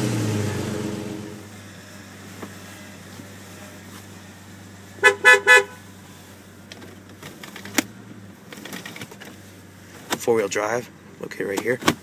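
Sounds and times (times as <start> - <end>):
car engine idling: 0.0 - 12.0
car horn beeping: 5.0 - 5.9.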